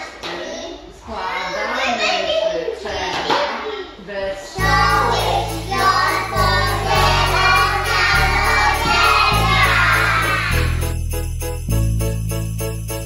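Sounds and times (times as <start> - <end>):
children singing: 4.5 - 10.8.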